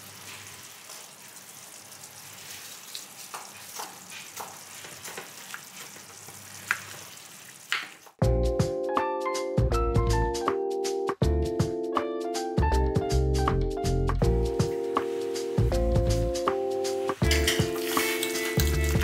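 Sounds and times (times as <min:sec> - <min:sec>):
sauce sizzling in a pan: 0:00.0 - 0:08.1, 0:14.2 - 0:19.0
music: 0:08.2 - 0:19.0
metal spoon clinking on glass bowl: 0:17.2 - 0:19.0.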